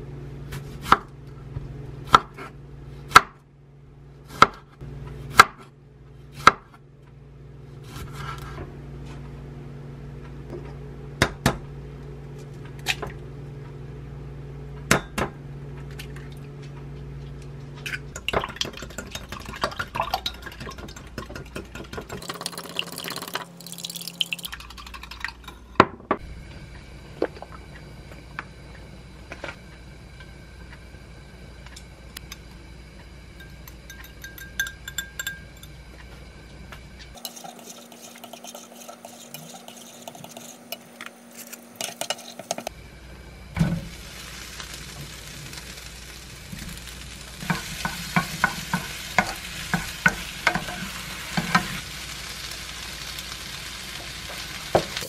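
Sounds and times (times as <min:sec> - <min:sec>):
chopsticks stirring eggs in pan: 0:37.2 - 0:42.7, 0:47.4 - 0:51.8.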